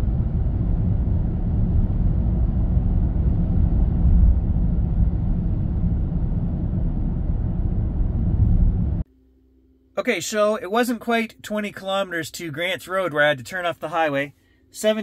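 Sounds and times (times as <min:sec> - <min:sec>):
road and wind noise in car: 0:00.0 - 0:09.0.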